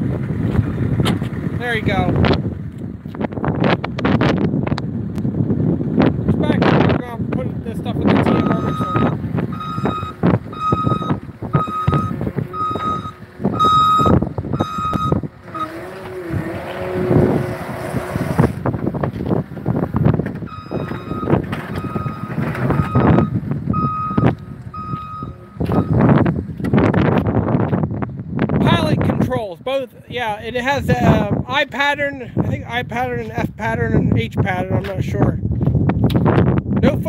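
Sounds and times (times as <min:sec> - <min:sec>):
wind buffeting microphone: 0:00.0 - 0:37.0
backup alarm beeping: 0:08.2 - 0:15.8, 0:20.5 - 0:26.2.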